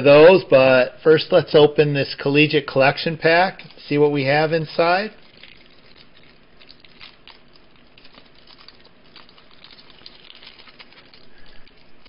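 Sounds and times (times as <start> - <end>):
wrapper being torn open: 5.2 - 12.0.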